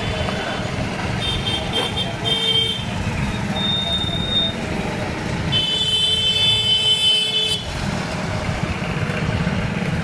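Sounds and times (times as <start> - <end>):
low rumble of road traffic: 0.0 - 10.0
vehicle horn: 5.5 - 7.7.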